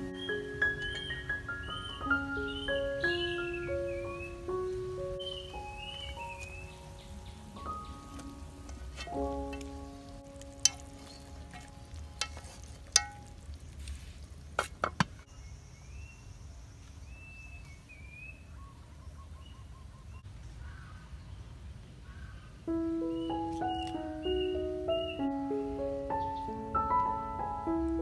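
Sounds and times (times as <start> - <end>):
bird chirping: 0.0 - 12.4, 15.1 - 27.2
low outdoor background noise: 0.0 - 28.0
chopsticks knocking on metal pot: 10.6 - 13.4.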